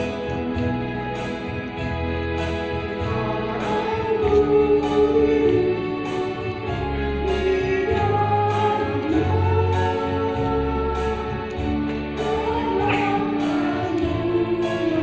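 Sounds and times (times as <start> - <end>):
instrumental accompaniment: 0.0 - 15.0
low bass line: 0.0 - 15.0
women's choir singing: 3.0 - 15.0.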